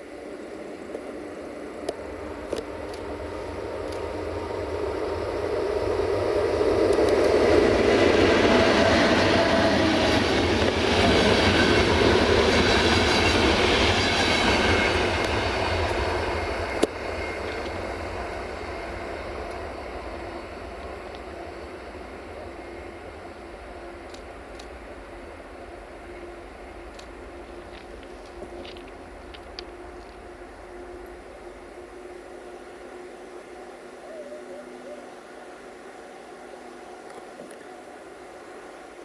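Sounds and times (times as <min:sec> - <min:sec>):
train wheels on rails: 0:00.0 - 0:33.5.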